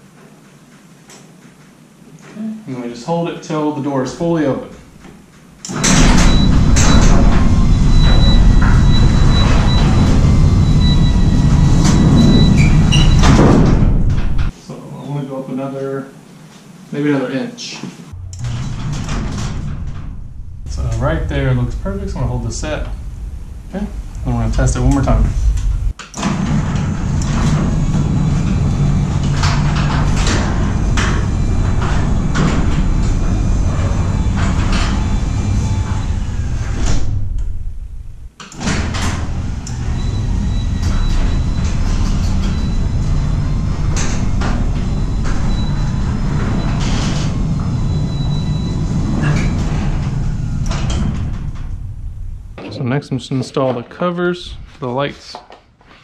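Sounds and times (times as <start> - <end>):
garage door rumbling: 4.0 - 14.6, 18.1 - 52.9
garage door opener motor hum: 4.3 - 14.5, 18.1 - 52.6
door clicks and rattles: 12.8 - 14.5, 18.2 - 21.2.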